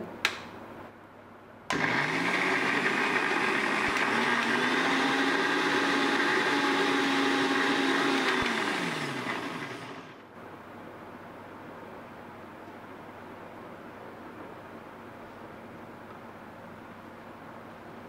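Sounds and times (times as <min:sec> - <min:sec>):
mixer grinder motor running: 0:01.7 - 0:10.2.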